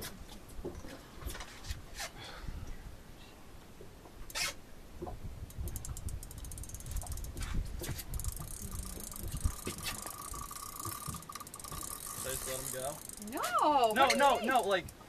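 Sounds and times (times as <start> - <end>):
fishing reel ratcheting: 5.5 - 15.0
thin steady whine: 8.1 - 15.0.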